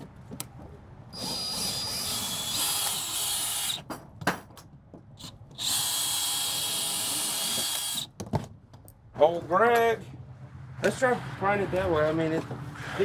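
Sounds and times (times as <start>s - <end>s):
cordless drill whining: 1.2s - 3.8s, 5.2s - 8.1s.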